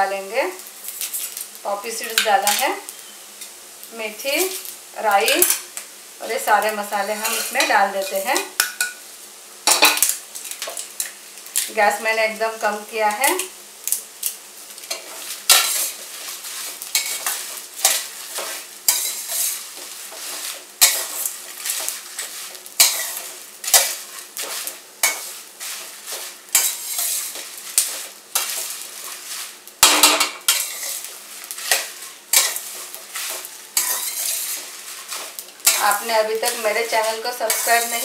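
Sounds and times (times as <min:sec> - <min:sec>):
sizzle: 0:00.0 - 0:38.0
metal spatula scraping wok: 0:00.8 - 0:03.2, 0:06.9 - 0:09.0, 0:14.8 - 0:38.0.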